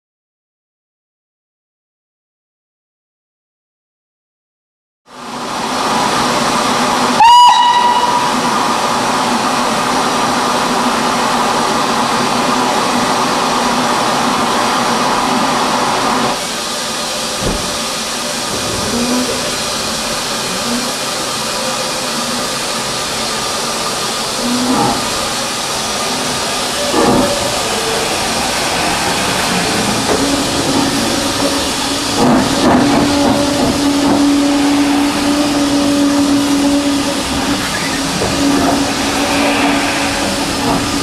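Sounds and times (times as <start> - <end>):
steam locomotive whistle: 7.1 - 8.5, 31.2 - 41.0
steam hissing: 13.7 - 41.0.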